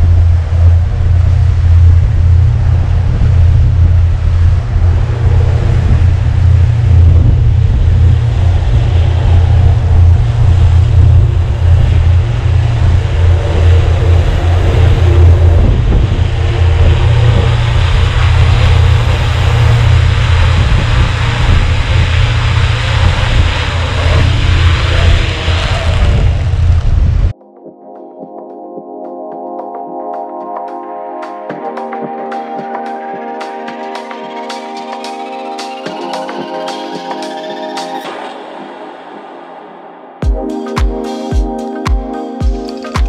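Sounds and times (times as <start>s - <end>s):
gusty wind buffeting microphone: 0.0s - 27.4s.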